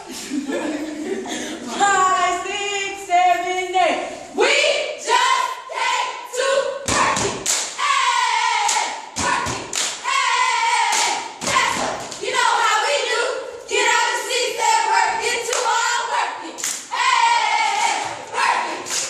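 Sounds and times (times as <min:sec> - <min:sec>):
girls chanting and singing: 0:01.1 - 0:19.0
stomps and claps: 0:06.9 - 0:07.8, 0:08.6 - 0:10.1, 0:10.8 - 0:12.4, 0:17.7 - 0:19.0.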